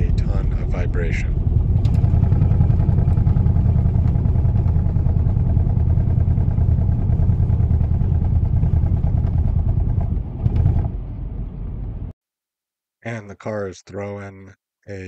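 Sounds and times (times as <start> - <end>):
car engine idling roughly: 0.0 - 10.0.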